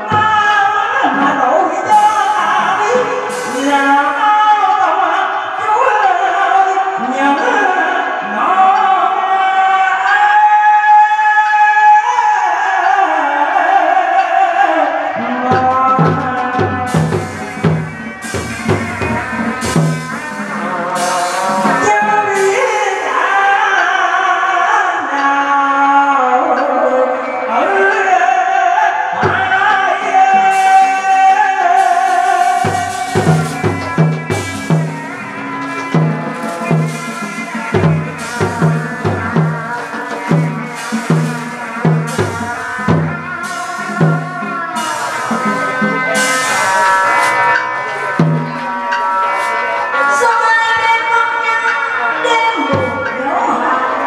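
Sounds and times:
low drum beats: 15.5s - 21.9s, 31.8s - 46.9s, 48.1s - 49.0s, 52.6s - 53.2s.

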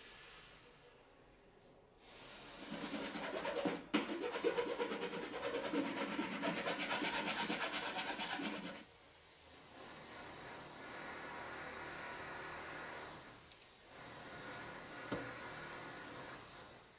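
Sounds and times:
faint steady hiss: 0.0s - 2.6s
metal file rasping on wood: 2.6s - 8.9s.

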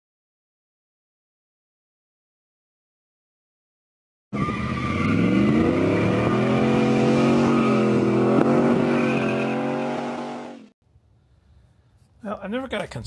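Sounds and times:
truck engine accelerating: 4.4s - 10.7s.

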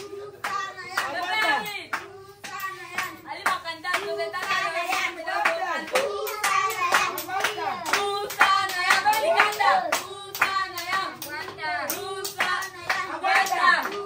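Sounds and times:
children talking and calling: 0.0s - 3.3s, 5.8s - 8.0s
sharp claps: 0.4s - 14.0s.

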